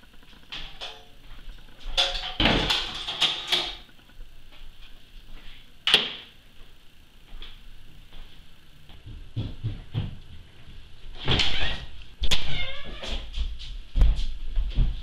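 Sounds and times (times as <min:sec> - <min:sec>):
footsteps on wooden floor: 0:06.6 - 0:10.8, 0:12.9 - 0:15.0.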